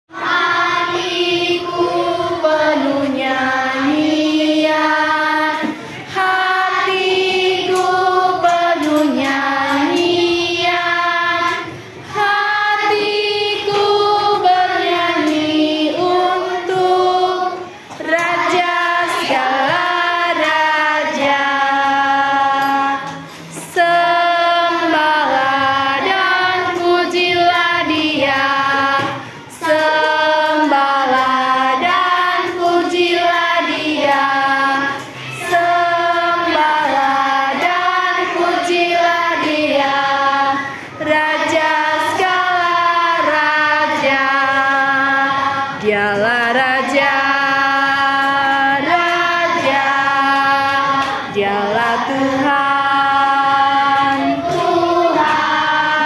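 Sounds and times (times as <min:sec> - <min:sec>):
children singing in unison: 0:00.1 - 0:56.0.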